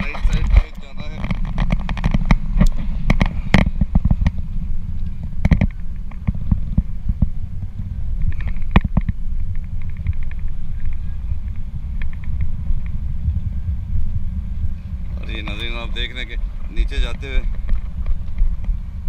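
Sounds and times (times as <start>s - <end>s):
clicks and knocks of gear: 0.0s - 4.4s
wind buffeting microphone: 0.0s - 19.0s.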